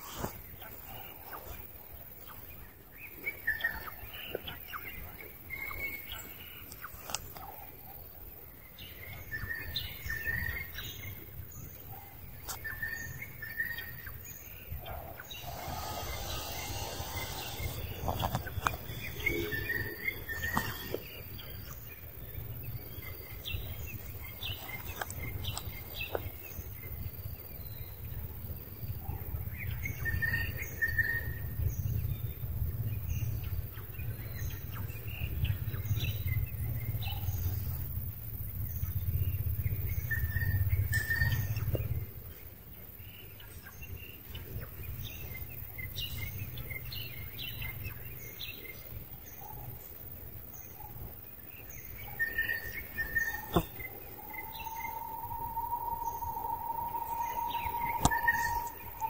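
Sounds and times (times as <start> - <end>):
birds chirping: 0.0 - 26.8, 51.5 - 59.0
low rumble: 53.6 - 59.0.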